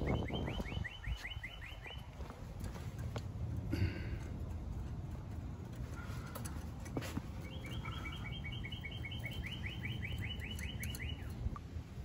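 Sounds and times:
songbird trilling: 7.4s - 11.4s.

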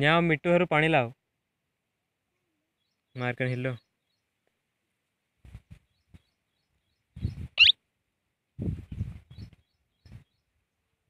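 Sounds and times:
parakeet squeak: 7.6s - 7.8s.

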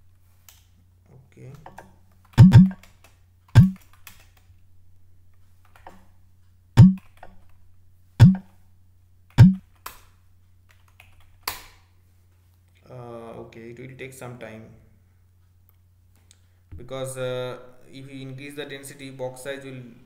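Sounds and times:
keyboard key clicks: 2.4s - 2.8s, 3.6s - 4.2s, 9.4s - 9.6s
low hum: 2.4s - 2.8s, 6.8s - 7.0s, 8.2s - 8.4s, 9.4s - 9.6s.

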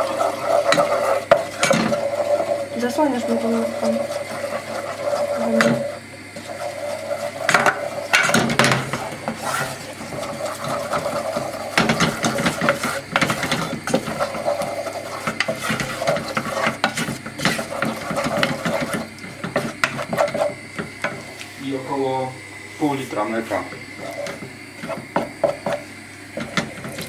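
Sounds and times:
wooden spoon scraping saucepan: 0.0s - 21.5s, 24.0s - 27.0s
spoon knocking against pan: 24.4s - 25.8s.

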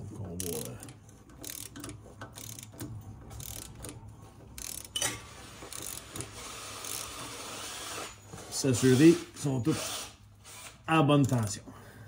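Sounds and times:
wrench ratcheting clicks: 0.4s - 7.2s.

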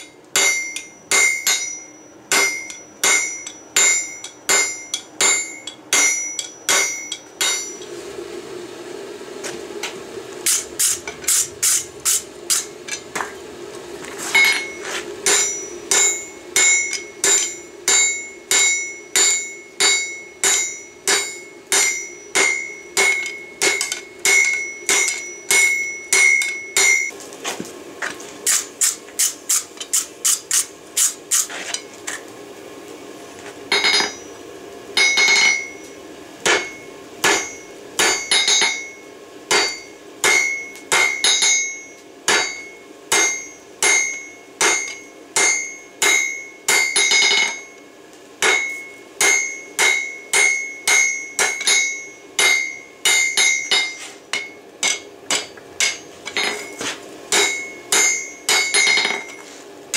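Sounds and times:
anvil ringing: 0.0s - 7.9s, 14.4s - 27.1s, 33.7s - 34.4s, 35.0s - 35.8s, 36.4s - 47.8s, 48.4s - 59.4s
hammer striking hot steel on anvil: 0.0s - 8.0s, 9.8s - 13.4s, 14.3s - 27.2s, 28.4s - 31.9s, 33.7s - 34.4s, 35.0s - 59.5s.

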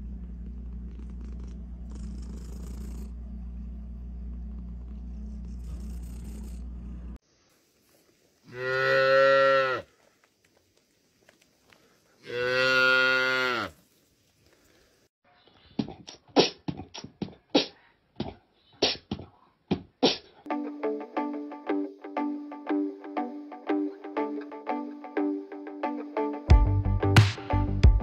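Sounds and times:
music with plucked notes: 20.5s - 28.0s.

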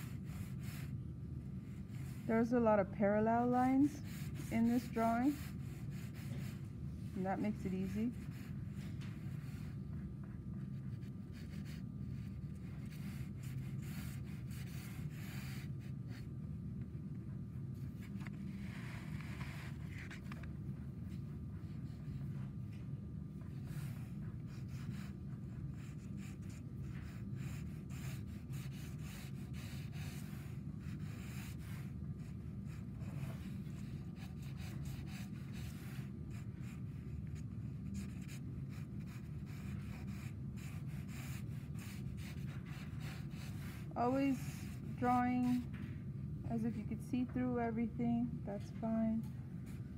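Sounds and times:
pencil sketching on paper: 0.0s - 1.0s, 1.6s - 6.6s, 7.2s - 9.8s, 10.6s - 16.3s, 23.4s - 45.7s
low background hum: 0.0s - 49.9s.

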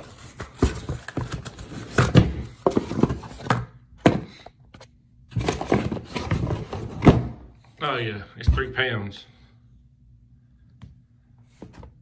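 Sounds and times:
cardboard rustling and scraping: 0.0s - 3.6s, 5.3s - 7.4s.

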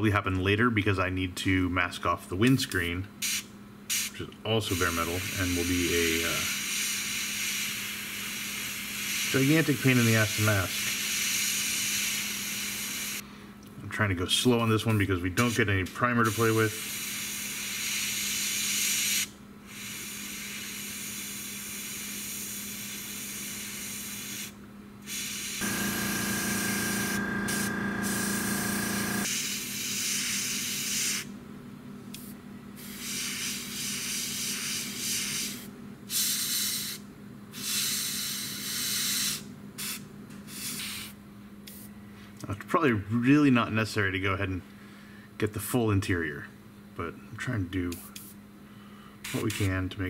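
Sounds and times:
airbrush air hiss: 3.2s - 4.1s, 4.7s - 13.2s, 14.9s - 31.3s, 32.2s - 37.0s, 37.6s - 41.9s, 49.2s - 49.8s
buzzing motor hum: 25.6s - 29.3s.

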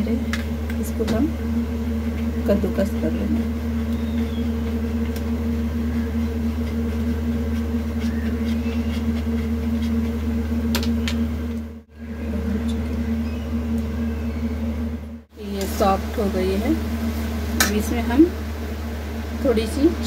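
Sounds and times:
low machine hum: 0.0s - 20.0s
cheese scraping on grater: 6.6s - 10.4s.

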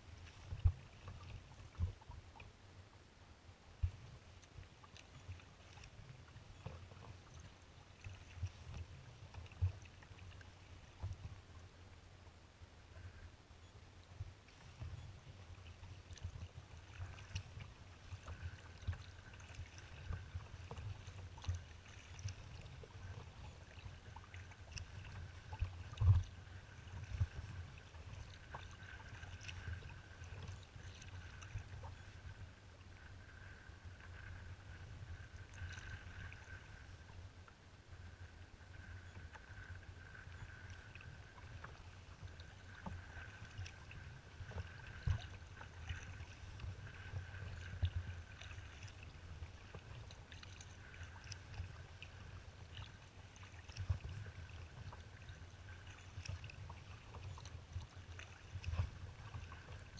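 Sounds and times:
wind rumble on microphone: 14.2s - 37.3s.

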